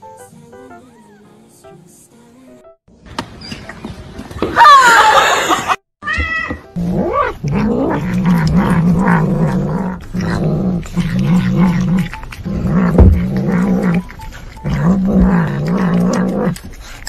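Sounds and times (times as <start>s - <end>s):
cat growling while eating: 6.8s - 17.0s.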